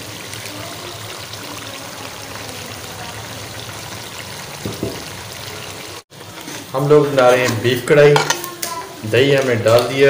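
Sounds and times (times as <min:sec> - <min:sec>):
beef sizzling in a pot: 0:00.0 - 0:10.0.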